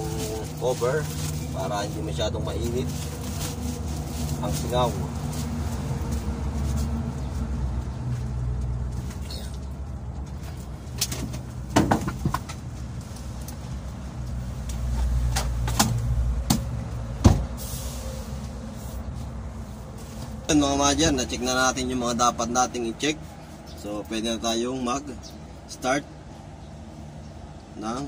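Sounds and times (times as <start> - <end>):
seat knocking down: 17.2 - 17.5.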